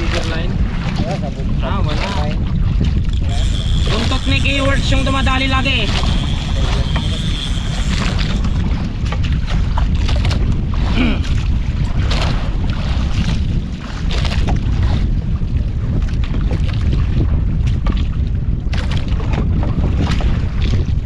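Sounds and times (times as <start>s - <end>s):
water splashing against hull: 0.0s - 21.0s
wind buffeting microphone: 0.0s - 21.0s.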